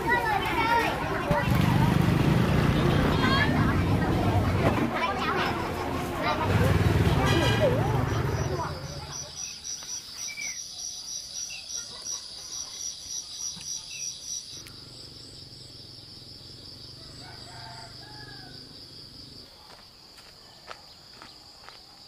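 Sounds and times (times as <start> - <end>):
insects trilling: 7.9 - 22.0
bird chirps: 8.1 - 14.8
rooster crowing: 16.9 - 18.8.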